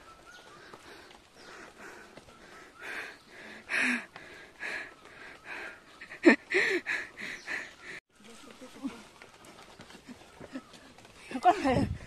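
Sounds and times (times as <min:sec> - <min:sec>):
person panting heavily: 0:00.6 - 0:08.0
voiced gasps: 0:00.7 - 0:05.8.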